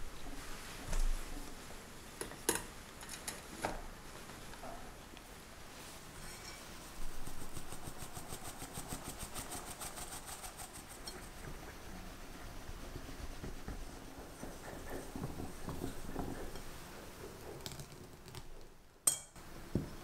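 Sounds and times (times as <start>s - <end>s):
sieve rasping powder: 5.9s - 18.6s
whisk stirring in glass bowl: 7.1s - 17.6s.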